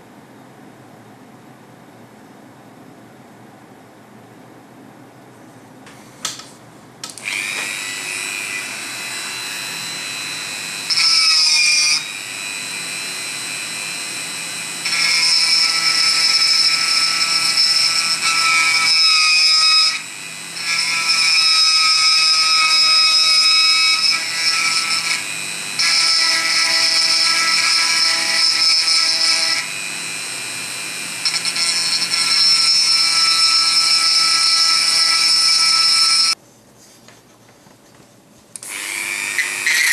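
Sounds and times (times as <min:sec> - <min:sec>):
rotary tool grinding wood: 0:07.2 - 0:36.4, 0:38.6 - 0:39.9.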